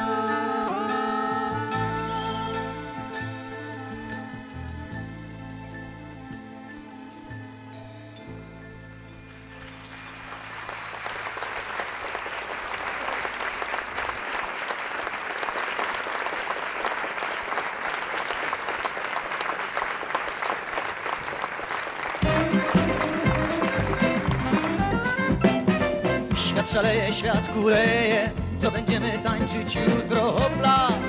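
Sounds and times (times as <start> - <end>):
audience applauding: 9.3 - 26.4
band holding final chord: 22.2 - 26.3.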